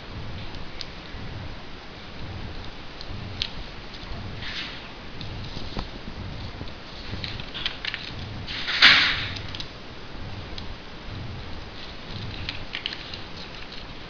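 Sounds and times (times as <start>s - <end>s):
foil paper crackle: 3.3s - 9.7s, 11.7s - 14.0s
foil paper rustling and crinkling: 3.3s - 9.7s, 11.7s - 14.0s.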